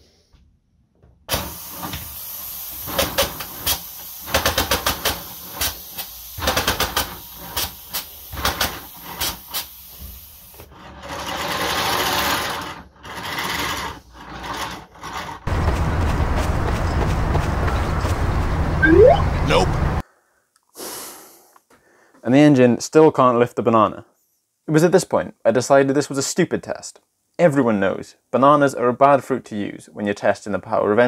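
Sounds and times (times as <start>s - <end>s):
compressed air hissing: 1.3s - 10.6s.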